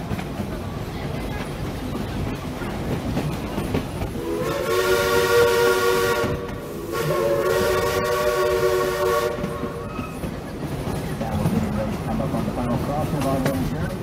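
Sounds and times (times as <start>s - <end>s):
steam locomotive chime whistle: 4.2s - 10.2s.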